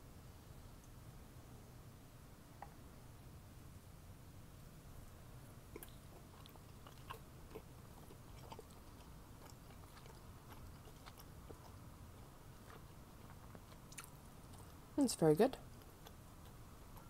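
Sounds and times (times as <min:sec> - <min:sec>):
chewing food: 0:05.5 - 0:17.0
wet mouth clicks: 0:05.7 - 0:11.8, 0:12.7 - 0:14.8.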